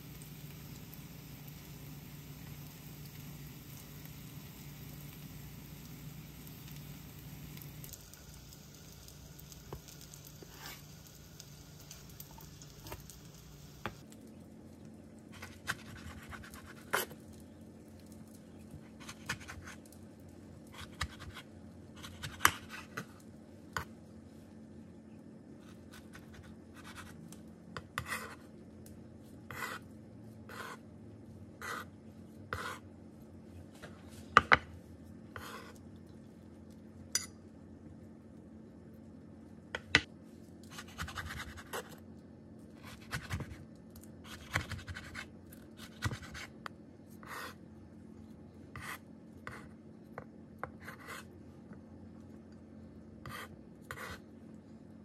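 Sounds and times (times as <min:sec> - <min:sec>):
pancake sizzling in frying pan: 0:00.0 - 0:14.0.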